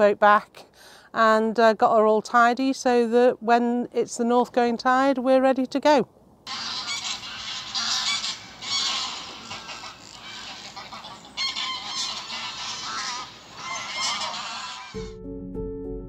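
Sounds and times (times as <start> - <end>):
birds calling: 6.5 - 15.0.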